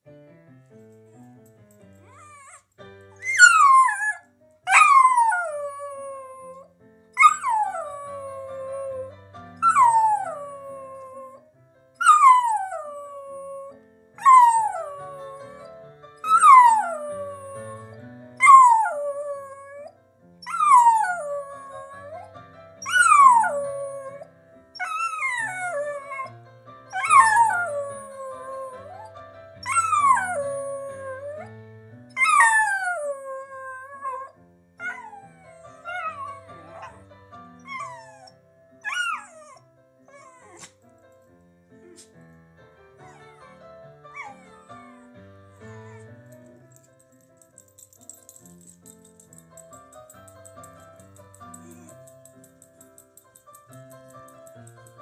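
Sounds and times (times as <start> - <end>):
ragtime piano: 0.0 - 4.0, 7.8 - 12.0, 14.8 - 18.4, 21.4 - 24.8, 25.4 - 32.2, 35.2 - 38.8, 40.8 - 55.0
dog howling: 3.2 - 11.4, 16.3 - 19.9, 20.5 - 24.2, 24.8 - 26.3, 27.0 - 31.5, 32.2 - 37.0.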